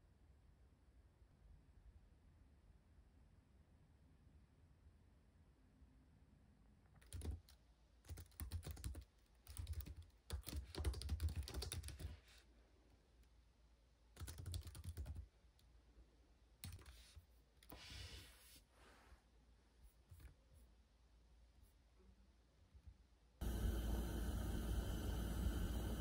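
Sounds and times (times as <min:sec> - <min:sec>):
laptop keyboard typing: 0:07.0 - 0:12.2, 0:14.2 - 0:15.3, 0:16.6 - 0:17.1.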